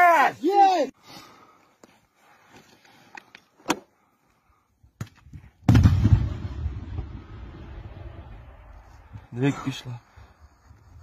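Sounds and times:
distant explosion boom: 0:05.6 - 0:08.8.

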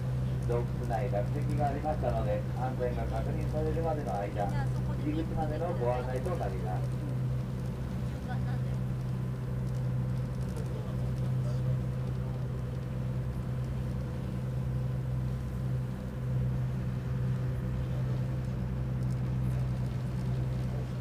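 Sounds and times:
boat engine droning: 0:00.0 - 0:21.0
water under hull: 0:00.0 - 0:21.0.

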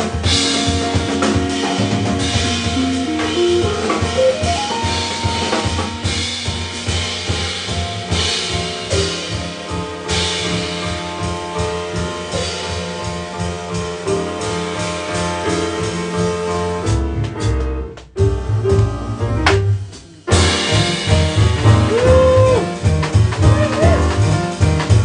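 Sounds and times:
drum kit with cymbals: 0:00.0 - 0:25.0
plucked double bass: 0:02.0 - 0:05.3, 0:16.9 - 0:25.0
sustained pitched notes: 0:02.8 - 0:05.6.

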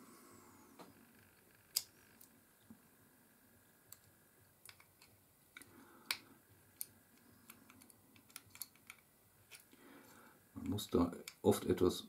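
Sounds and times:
small metal clicks and taps: 0:06.8 - 0:09.6.

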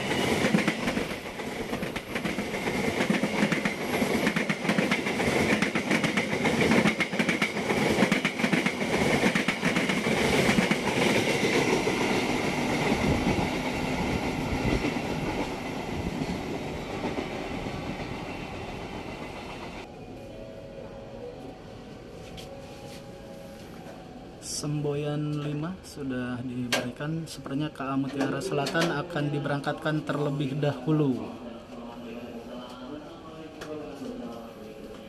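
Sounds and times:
steady high ringing: 0:19.8 - 0:26.1.

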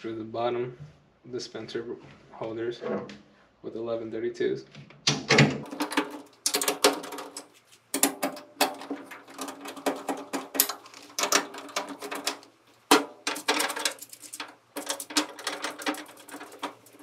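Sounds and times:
nut driver clicking and scraping: 0:05.7 - 0:17.0.

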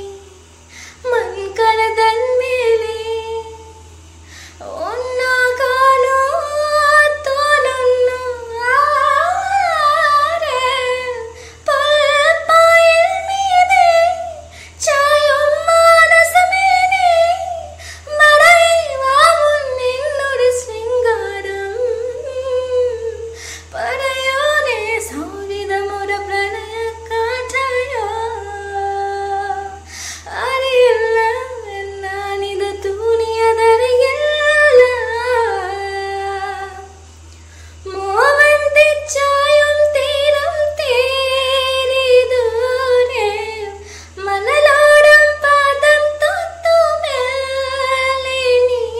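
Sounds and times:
woman singing solo: 0:37.8 - 0:48.9.

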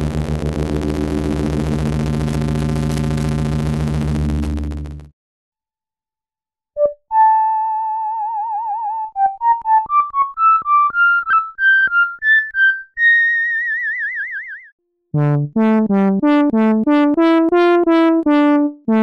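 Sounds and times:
low buzzy synthesizer drone: 0:00.0 - 0:05.1
synthesizer flute notes: 0:06.8 - 0:14.6.

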